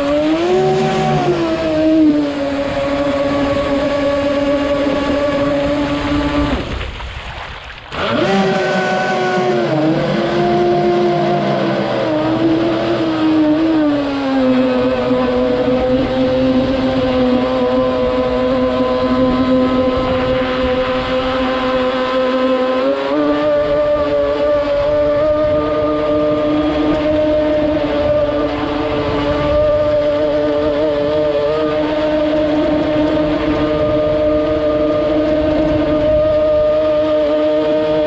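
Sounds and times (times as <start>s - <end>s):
boat motor whining: 0.0s - 38.0s.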